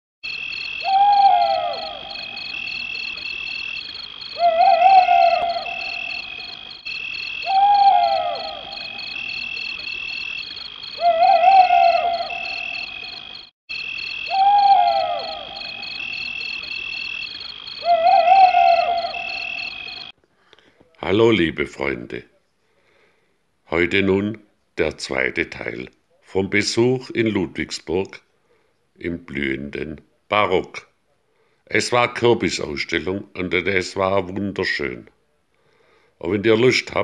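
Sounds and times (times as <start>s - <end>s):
pulsing high-pitched chirr: 0.2s - 20.2s
animal call with falling sweep: 0.8s - 2.5s, 4.3s - 6.6s, 7.4s - 9.8s, 10.9s - 13.2s, 14.2s - 16.6s, 17.7s - 20.1s.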